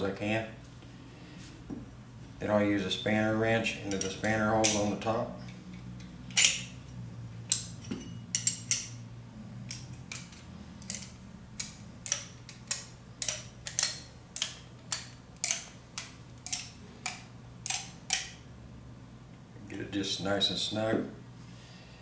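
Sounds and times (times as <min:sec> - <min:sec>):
metal wrench clinking: 0:03.8 - 0:09.1, 0:09.7 - 0:18.4.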